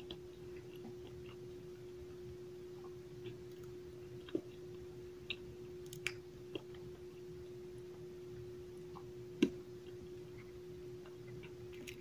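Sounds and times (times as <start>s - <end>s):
crunchy chewing: 0.0s - 1.7s, 8.8s - 12.0s
faint hum: 0.0s - 12.0s.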